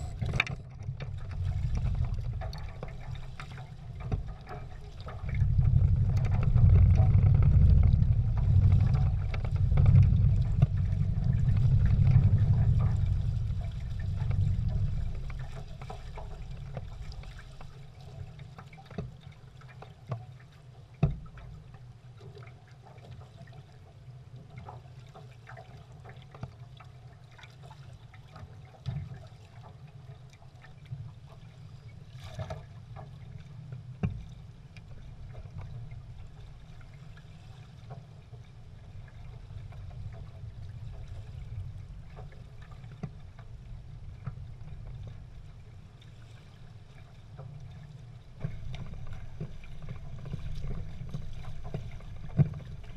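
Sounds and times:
heavy low rumble: 0.0 - 17.3
water lapping against hulls: 0.0 - 52.9.

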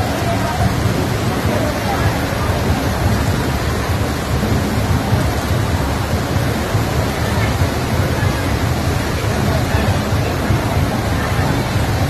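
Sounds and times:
heavy rain pouring: 0.0 - 12.0.

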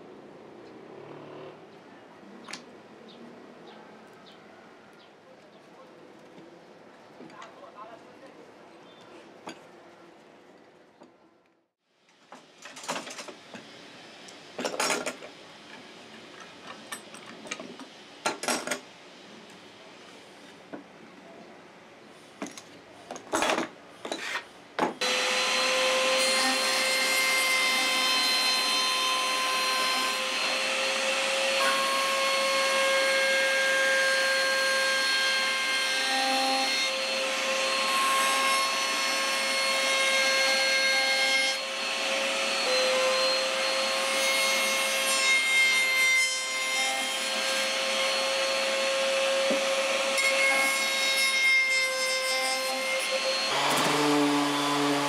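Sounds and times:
router motor whine: 25.0 - 26.2, 53.1 - 55.0
router bit cutting wood: 25.0 - 51.2, 51.8 - 55.0.

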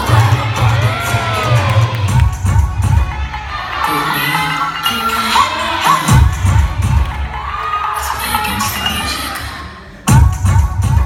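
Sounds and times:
low bass music: 0.0 - 3.5, 6.1 - 7.5, 10.1 - 11.0
audience cheering and shouting: 0.0 - 10.2.

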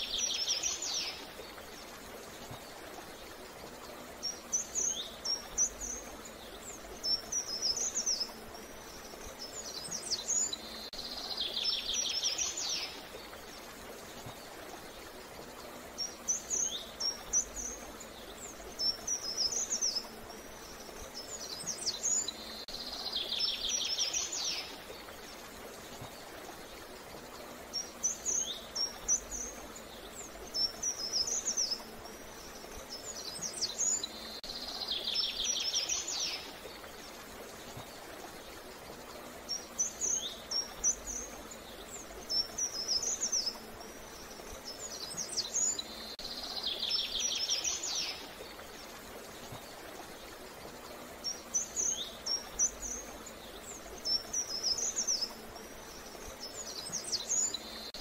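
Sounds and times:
faint steady hiss: 0.0 - 58.0
songbird chirping and trilling: 3.9 - 13.4, 21.0 - 25.1, 27.4 - 36.9, 44.4 - 48.6.

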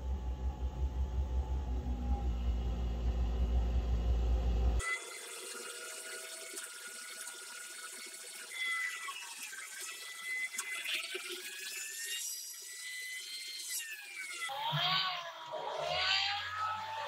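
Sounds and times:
electric winch whining: 14.3 - 17.0.

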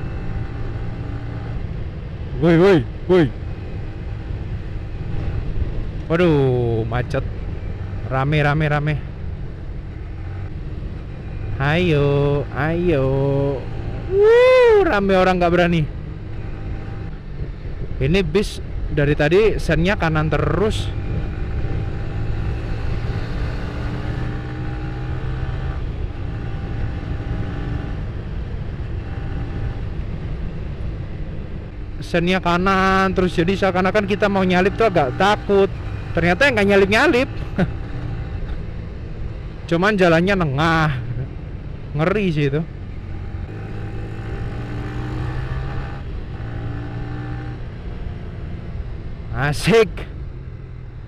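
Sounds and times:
motorcycle engine at speed: 0.0 - 51.0
road rumble: 0.0 - 51.0
wind: 0.0 - 51.0.

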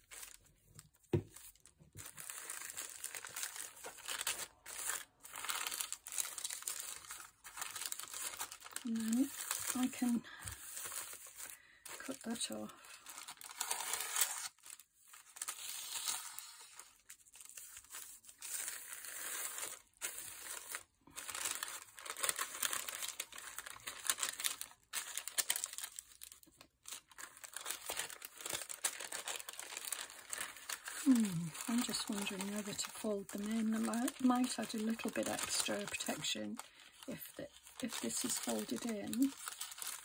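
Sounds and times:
tissue paper crinkling: 0.0 - 40.0.

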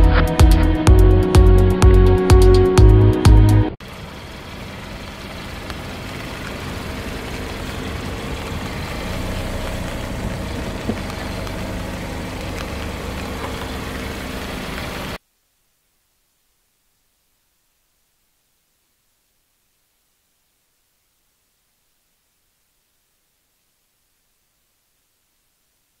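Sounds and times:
car engine idling: 3.8 - 15.2
tyre noise on asphalt: 3.8 - 15.2.

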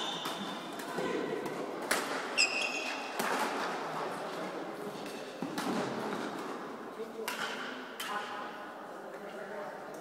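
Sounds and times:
shoes squeaking on court floor: 0.0 - 0.6, 2.3 - 3.2.

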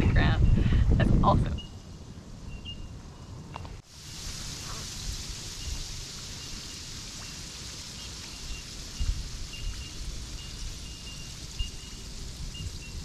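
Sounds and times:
crabs scuttling on wet sand: 3.8 - 13.0.

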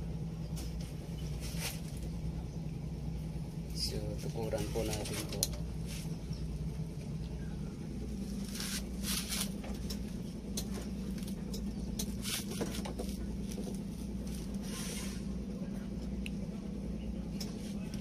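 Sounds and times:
steady low hum: 0.0 - 18.0
scraping and rustling: 0.6 - 2.2, 8.2 - 10.1, 10.7 - 15.3.

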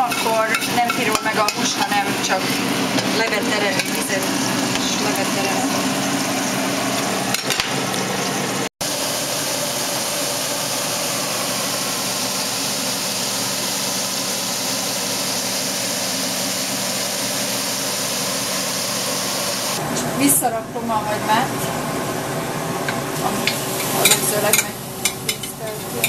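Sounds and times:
meat sizzling in hot oil: 0.0 - 19.8, 23.2 - 26.0.

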